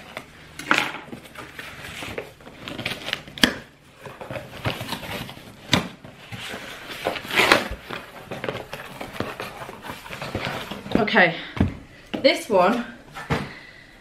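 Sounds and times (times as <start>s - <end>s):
cardboard scraping and rustling: 0.9s - 11.1s
cardboard snapping: 2.1s - 6.0s.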